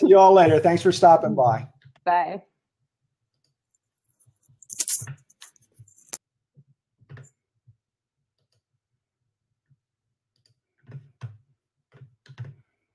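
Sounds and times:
computer mouse clicks: 10.4 - 11.3.

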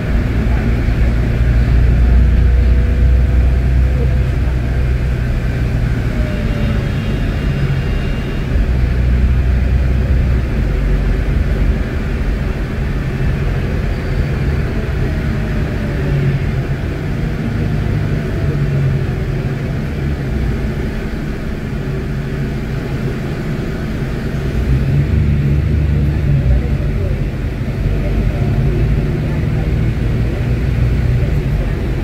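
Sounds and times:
bus diesel engine rumble: 0.0 - 32.0
road noise: 0.0 - 32.0.

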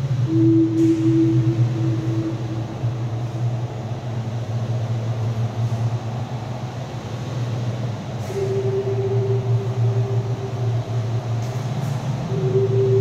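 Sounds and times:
low electronic hum: 0.0 - 13.0
higher held tone: 0.2 - 4.6, 8.2 - 13.0.

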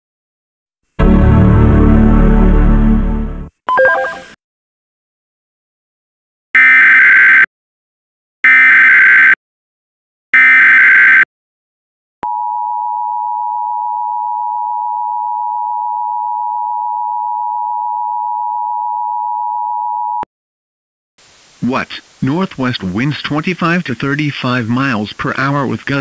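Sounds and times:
two-tone alert signal: 3.7 - 4.4.

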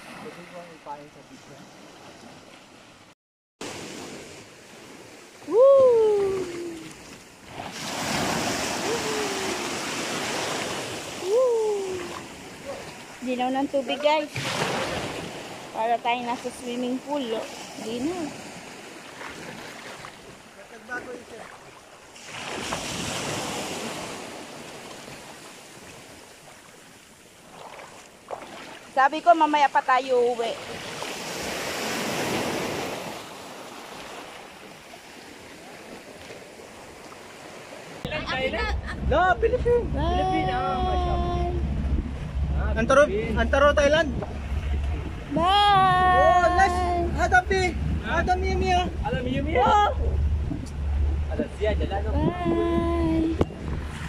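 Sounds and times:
small waves washing over pebbles: 6.4 - 11.3, 16.9 - 29.0.

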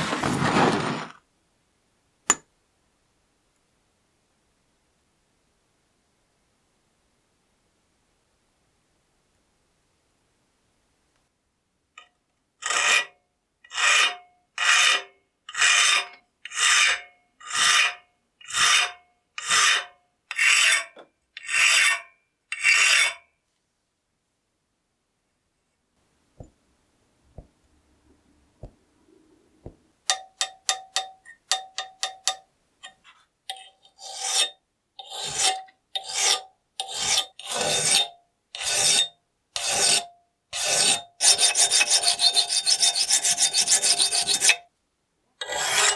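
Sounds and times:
metal file scraping steel: 12.6 - 23.2, 30.1 - 44.6, 45.4 - 45.9.

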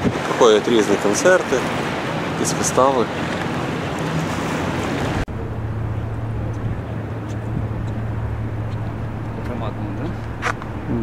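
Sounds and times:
water and boat noise: 0.0 - 11.0
wind buffeting microphone: 0.0 - 11.0
dull background wash: 0.8 - 11.0
low steady hum: 5.1 - 11.0.

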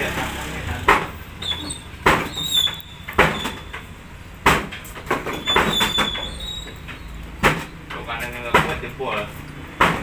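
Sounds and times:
sharp knocks: 0.8 - 1.2, 2.0 - 2.4, 3.1 - 6.2, 7.4 - 7.8, 8.5 - 9.0, 9.7 - 10.0.

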